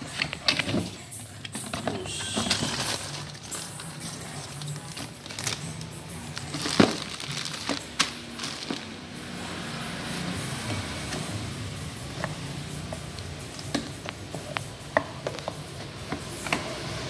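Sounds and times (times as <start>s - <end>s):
plastic bag crinkling: 1.6s - 9.1s.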